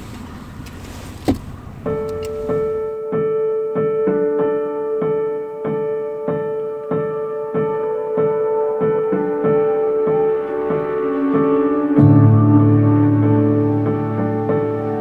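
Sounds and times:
car noise: 0:00.0 - 0:03.0
brief thump: 0:01.2 - 0:01.5
piano music: 0:01.6 - 0:15.0.

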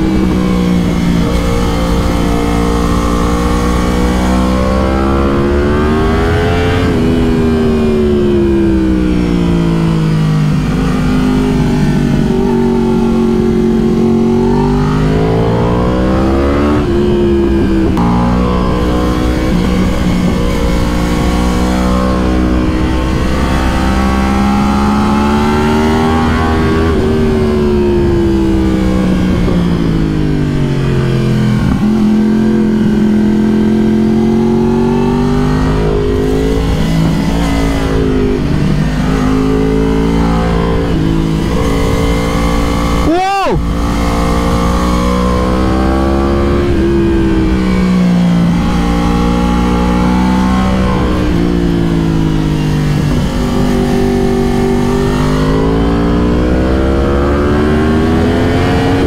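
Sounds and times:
wind rush: 0:00.0 - 0:56.6
sport bike engine accelerating: 0:00.0 - 0:59.0.

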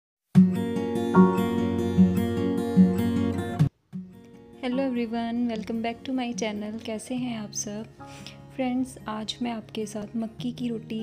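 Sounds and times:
plucked string music: 0:01.0 - 0:05.7
steady low note: 0:01.2 - 0:02.1.

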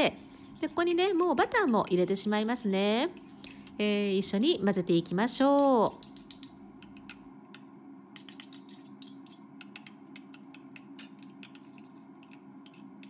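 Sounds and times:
metal spoon clinking in bowl: 0:08.2 - 0:13.0.

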